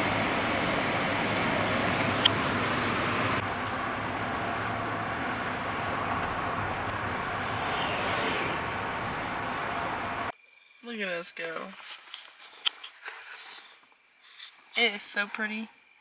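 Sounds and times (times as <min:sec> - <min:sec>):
road and engine noise in car: 0:00.0 - 0:10.4.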